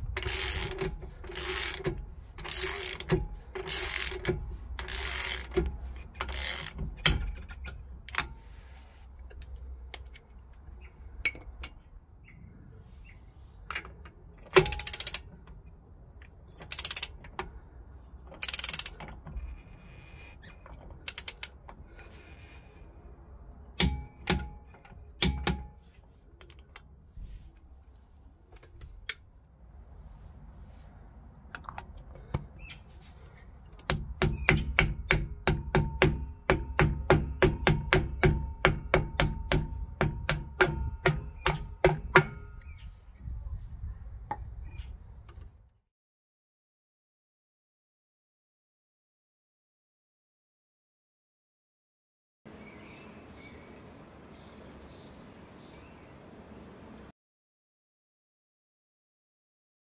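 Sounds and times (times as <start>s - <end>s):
wrench ratcheting: 0.0s - 8.4s, 14.5s - 15.3s, 16.6s - 17.4s, 18.3s - 19.7s, 20.7s - 21.6s
sharp metallic clicks: 13.7s - 15.6s, 16.6s - 17.6s, 18.3s - 19.2s, 20.7s - 21.8s
hammer tapping on metal: 25.2s - 25.8s, 33.8s - 42.6s.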